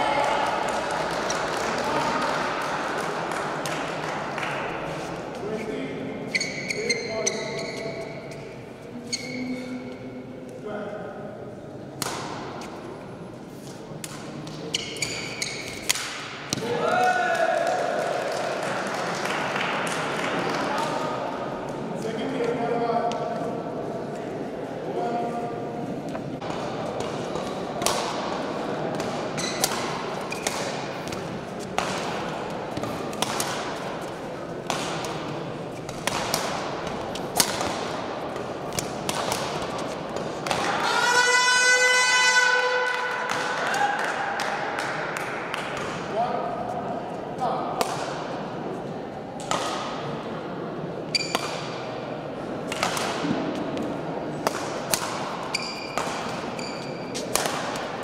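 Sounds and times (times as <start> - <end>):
murmur of background noise: 0.0 - 58.0
shoe squeaks: 6.2 - 10.0, 14.6 - 15.9, 29.4 - 29.7, 51.1 - 51.5, 55.5 - 57.3
racket hitting shuttlecock: 11.9 - 12.8, 14.0 - 16.7, 26.4 - 40.9, 47.8 - 48.4, 49.4 - 50.2, 51.2 - 52.0, 52.6 - 58.0.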